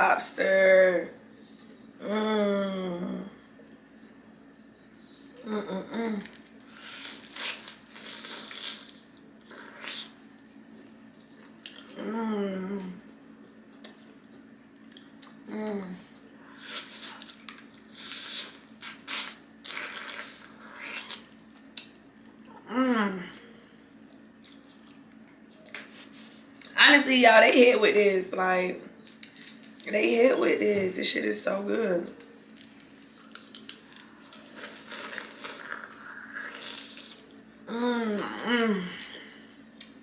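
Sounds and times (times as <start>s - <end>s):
person biting and chewing: 6.8s - 10.2s, 16.8s - 22.0s, 32.6s - 37.2s.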